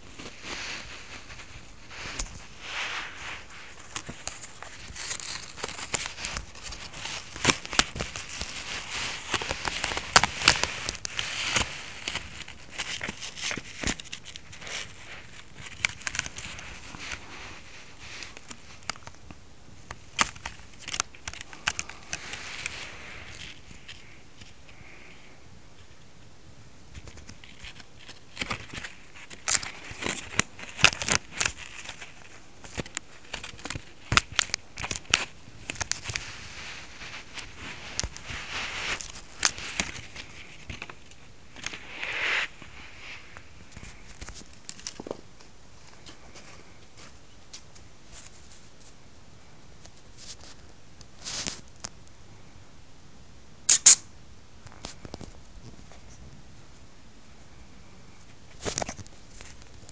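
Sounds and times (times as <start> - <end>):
plastic packaging crackling: 0.0 - 24.6, 27.0 - 45.4.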